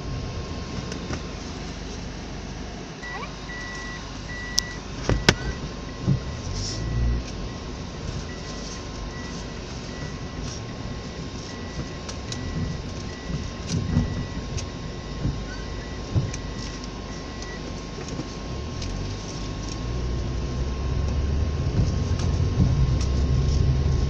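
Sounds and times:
road and engine rumble: 0.0 - 24.0
soft electronic beep: 3.0 - 17.6.

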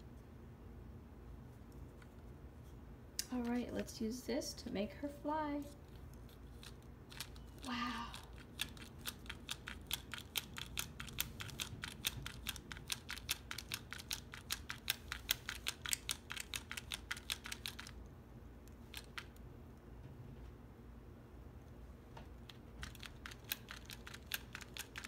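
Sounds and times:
plastic toy clicking: 8.3 - 18.0, 22.8 - 25.0.

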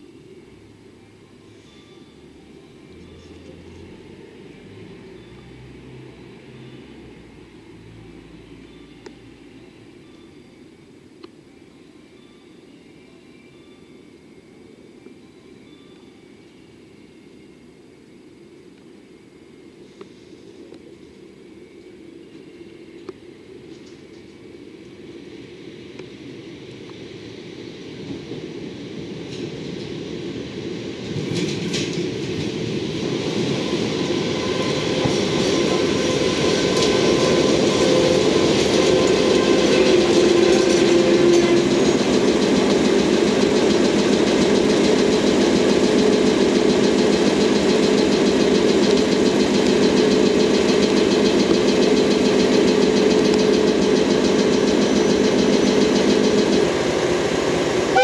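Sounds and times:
diesel locomotive engine running: 19.9 - 58.0
wheel clatter on rails: 35.0 - 57.2.

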